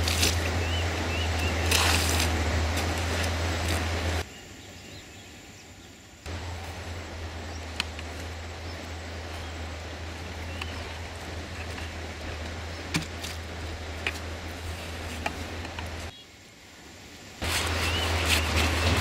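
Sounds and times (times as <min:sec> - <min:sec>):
low hum: 0:06.2 - 0:16.1.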